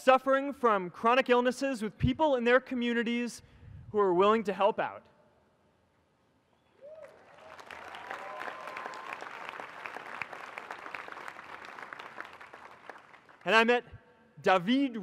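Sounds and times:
crowd cheering: 0:06.8 - 0:13.4
large crowd applauding: 0:06.8 - 0:13.5.

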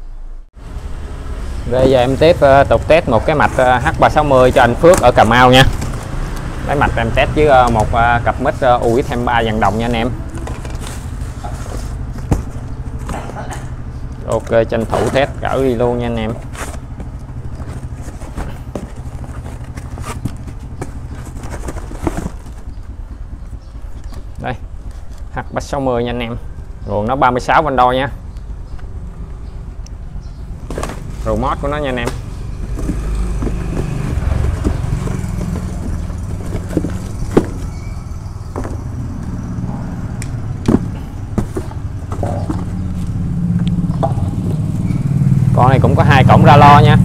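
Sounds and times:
cardboard box rustling: 0:03.3 - 0:07.0, 0:08.5 - 0:13.4, 0:14.2 - 0:25.2, 0:30.6 - 0:38.9, 0:40.7 - 0:43.2.

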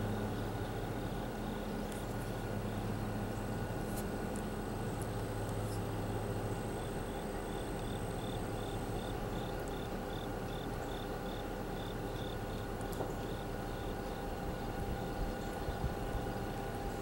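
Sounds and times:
cricket chirping: 0:00.0 - 0:01.7, 0:06.1 - 0:16.6
diesel locomotives rumbling: 0:00.0 - 0:03.8.

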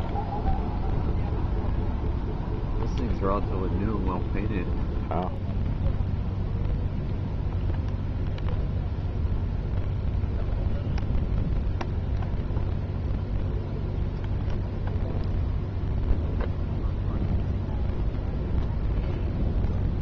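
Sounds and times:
boat engine droning: 0:00.0 - 0:20.0.

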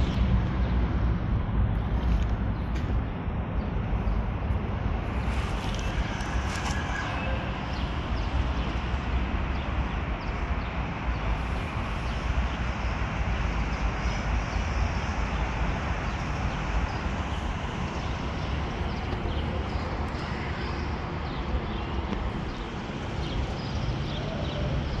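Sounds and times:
low street rumble: 0:00.0 - 0:25.0.

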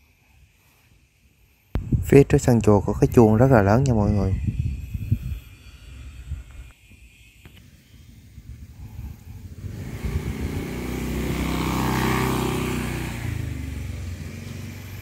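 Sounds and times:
motorbike engine passing: 0:09.0 - 0:15.0.

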